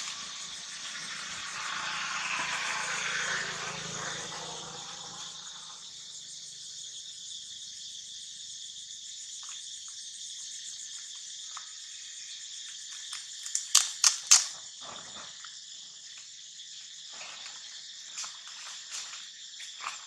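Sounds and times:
insects chorus in trees: 0.0s - 20.0s
sharp clicks: 13.0s - 14.6s.

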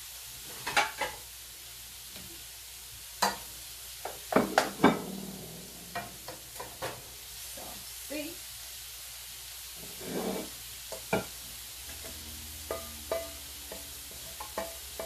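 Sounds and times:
shrimp sizzling in oil: 0.0s - 15.0s
spatula scraping a wok: 9.8s - 15.0s.

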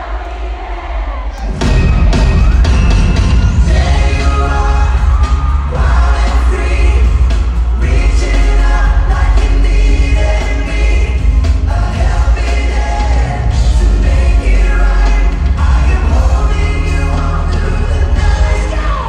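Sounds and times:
pop band playing: 0.0s - 19.0s
male vocal group singing: 3.5s - 19.0s.

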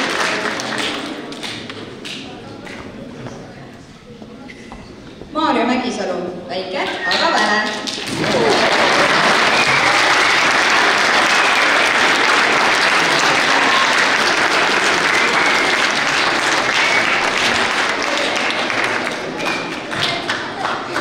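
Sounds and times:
audience applauding: 0.0s - 2.2s, 7.0s - 21.0s.

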